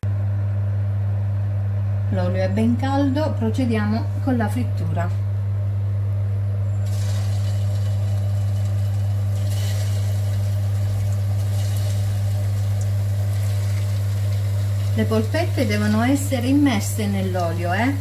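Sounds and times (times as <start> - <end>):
loud steady low hum: 0.0 - 18.0
meatballs sizzling in hot oil: 6.8 - 18.0.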